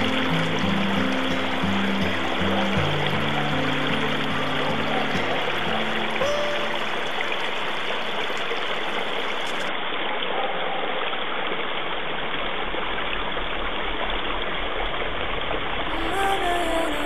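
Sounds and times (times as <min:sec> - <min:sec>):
water rushing over rocks: 0:00.0 - 0:10.2.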